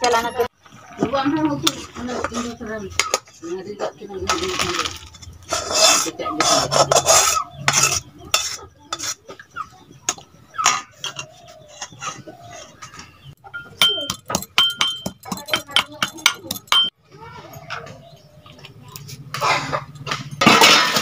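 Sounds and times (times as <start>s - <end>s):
metal spatula scraping wok: 1.6s - 9.4s, 10.1s - 13.3s
spoon clinking steel bowl: 13.6s - 16.9s
pestle pounding in steel mortar: 13.8s - 16.9s.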